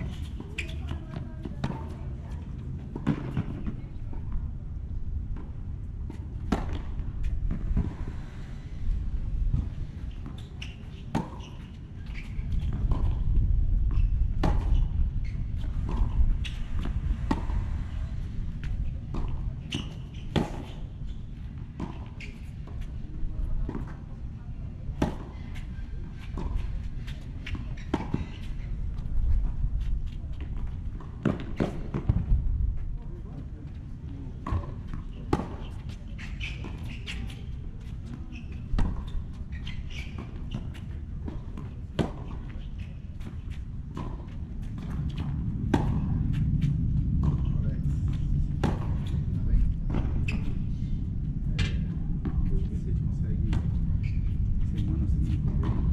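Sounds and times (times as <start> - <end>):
tennis ball bouncing on hard court: 6.1 - 7.9, 15.6 - 17.7, 34.4 - 46.1, 47.2 - 47.6
low steady rumble: 12.4 - 22.0, 38.5 - 55.9.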